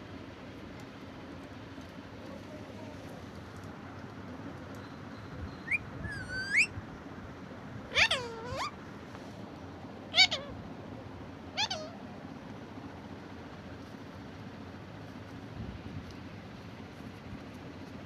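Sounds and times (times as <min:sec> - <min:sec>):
steady low hum: 0:00.0 - 0:18.0
parakeets calling: 0:05.6 - 0:06.7, 0:07.9 - 0:08.8, 0:10.1 - 0:10.6, 0:11.6 - 0:12.0.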